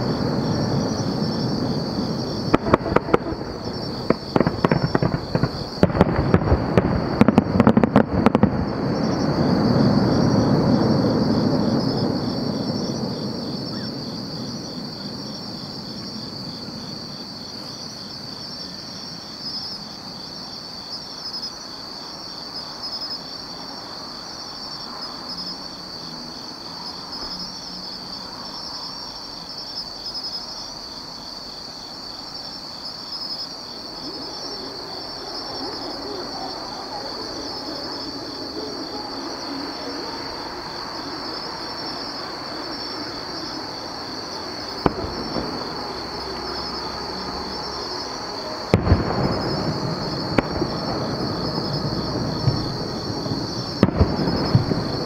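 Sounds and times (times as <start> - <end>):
crickets chirping: 0.0 - 55.0
firework shell bang: 48.7 - 50.9.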